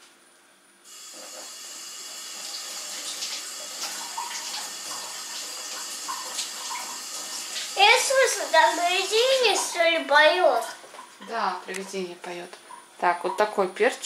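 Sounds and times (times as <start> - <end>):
tap water running into sink: 0.9 - 10.4.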